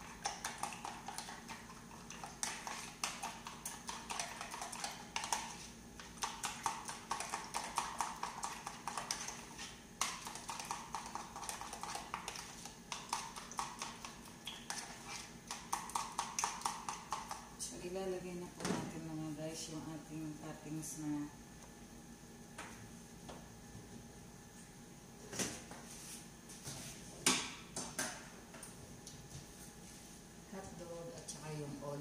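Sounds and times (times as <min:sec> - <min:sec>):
utensil beating in plastic container: 0:10.0 - 0:17.5.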